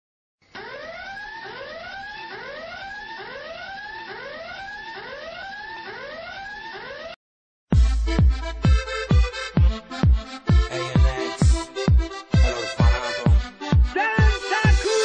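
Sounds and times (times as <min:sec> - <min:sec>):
whooping alarm siren: 0:00.5 - 0:07.2, 0:10.4 - 0:15.0.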